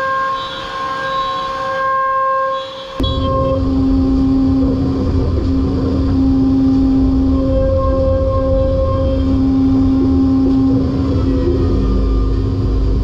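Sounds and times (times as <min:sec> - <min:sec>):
machine whine of several pitches: 0:00.0 - 0:13.0
heavy rumble: 0:03.0 - 0:13.0
spindle head humming: 0:03.0 - 0:13.0.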